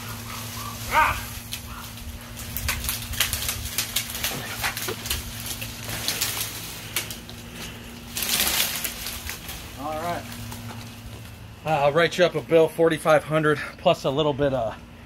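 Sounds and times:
limbs rustling through brush: 0.0 - 11.7
branches cracking and snapping: 0.0 - 12.0.

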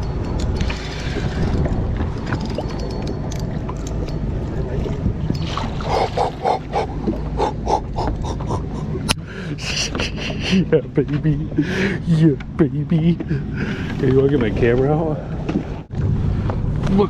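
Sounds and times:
fish splashing: 5.4 - 9.0
low rumble: 10.8 - 17.0.

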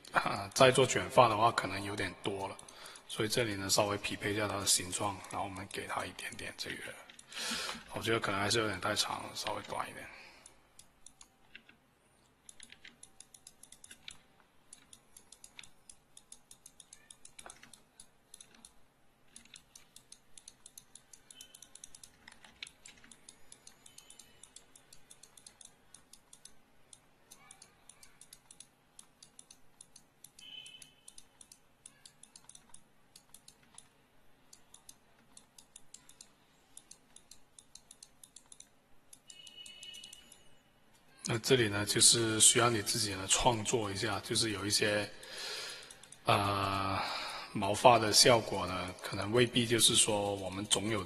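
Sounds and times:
mouse and keyboard clicking: 2.0 - 7.9, 9.0 - 41.4, 45.7 - 46.3.

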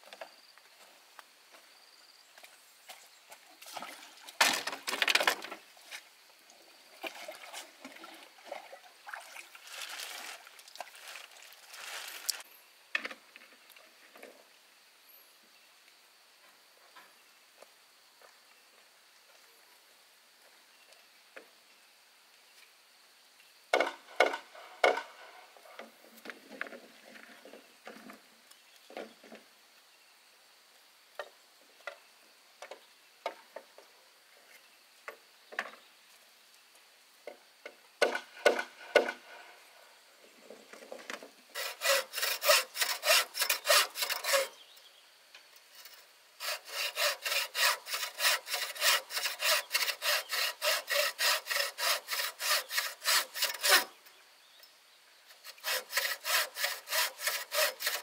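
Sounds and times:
hand saw cutting bamboo: 41.5 - 44.6, 45.8 - 54.0, 55.3 - 58.0.

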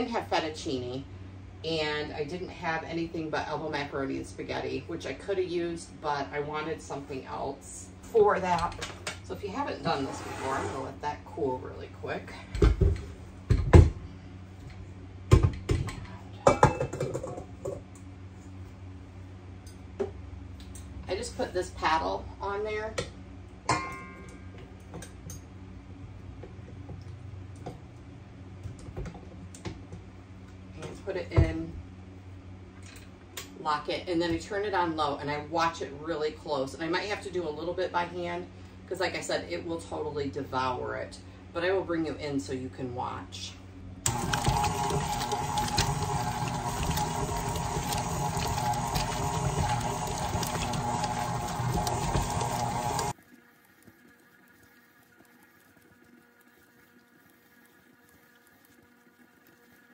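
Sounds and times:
mixer parts clicking and knocking: 44.1 - 53.1.

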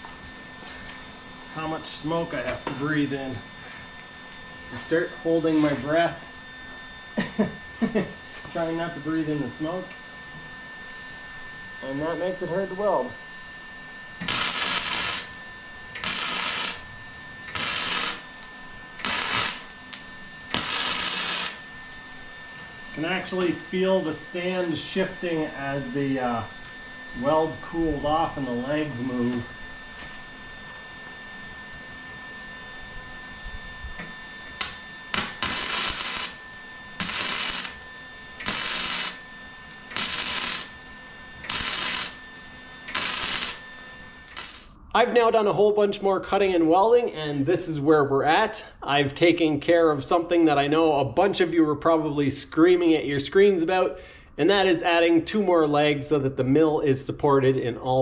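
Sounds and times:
welder arc crackling: 14.2 - 22.0, 34.0 - 44.8.

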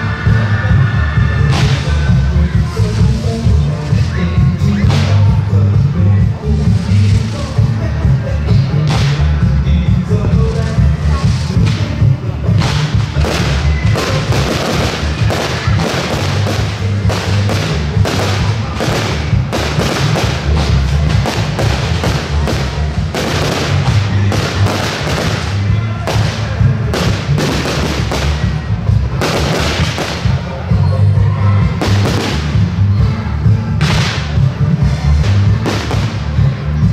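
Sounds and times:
loud music: 0.0 - 36.9
fireworks bangs and crackles: 1.4 - 3.2, 8.5 - 9.5, 10.7 - 30.8, 31.6 - 36.9.

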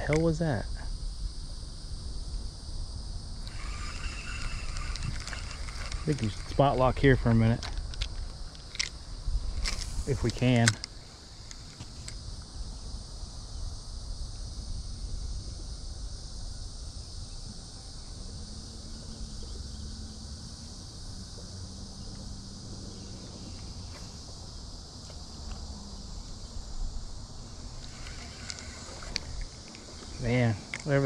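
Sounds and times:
faint low hum: 0.0 - 31.0
insects chorus: 0.0 - 31.0
wind rumble on microphone: 11.7 - 18.6.

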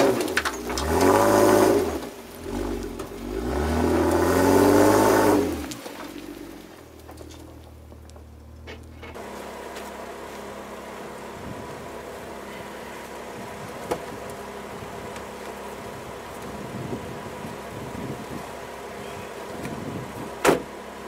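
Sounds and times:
car engine running: 0.0 - 21.0.

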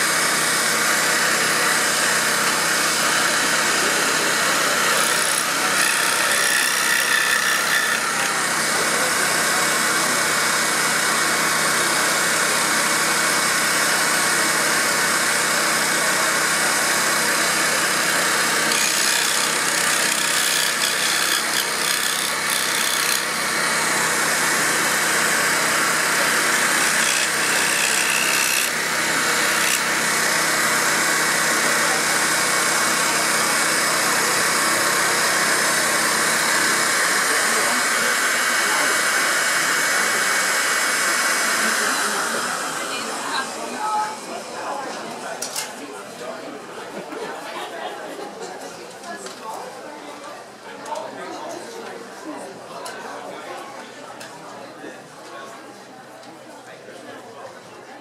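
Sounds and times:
scroll saw running: 0.0 - 44.7.

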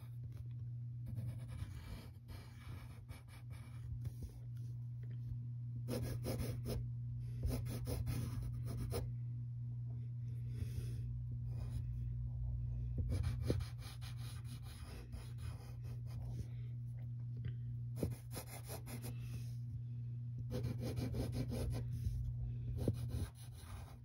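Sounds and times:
low hum: 0.0 - 24.0
pencil scratching on paper: 1.0 - 4.4, 5.9 - 6.8, 7.4 - 9.0, 13.0 - 16.4, 18.0 - 19.6, 20.5 - 24.0.

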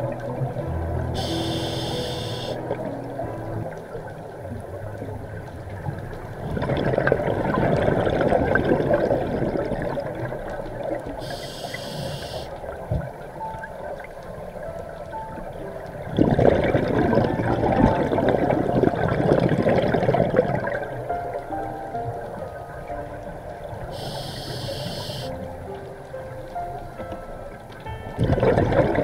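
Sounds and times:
regulator hissing inhale: 1.2 - 2.6, 11.2 - 12.6, 23.9 - 25.4
bubbling exhale underwater: 6.4 - 12.4, 16.1 - 21.0, 28.2 - 29.0.

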